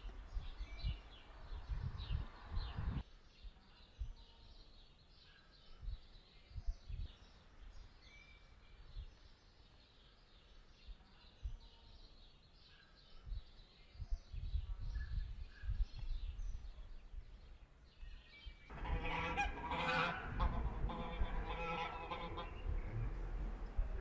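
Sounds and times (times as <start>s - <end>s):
wind buffeting microphone: 0.0s - 4.3s, 5.8s - 8.0s, 10.7s - 11.8s, 13.2s - 24.0s
faint bird chirps: 0.0s - 18.7s
geese honking: 18.7s - 23.4s.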